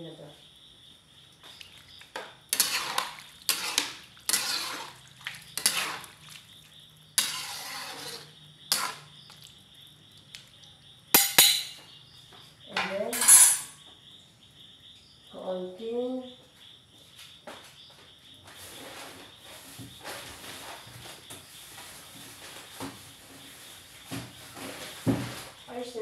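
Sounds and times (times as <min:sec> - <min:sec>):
ladle scraping a metal wok: 0:02.5 - 0:06.2, 0:07.2 - 0:09.1, 0:13.2 - 0:13.7.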